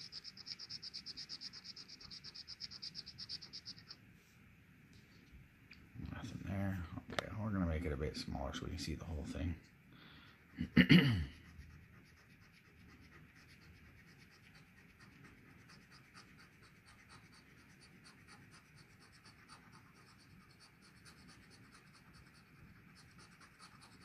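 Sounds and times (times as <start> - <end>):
coin scratching lottery ticket: 0.0 - 4.0, 12.0 - 24.0.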